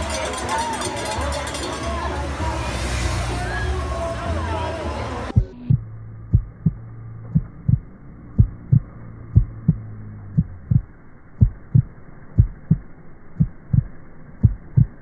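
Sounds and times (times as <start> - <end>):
low hum: 5.2 - 15.0
heartbeat thumps: 5.3 - 15.0.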